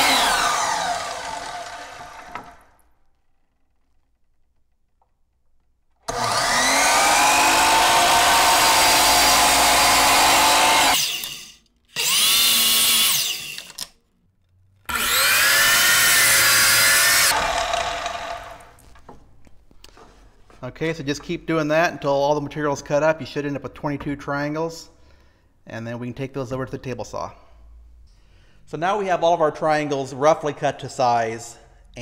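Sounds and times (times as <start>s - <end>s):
miter saw cutting plywood: 0.0s - 2.7s, 6.1s - 13.7s, 14.9s - 18.7s.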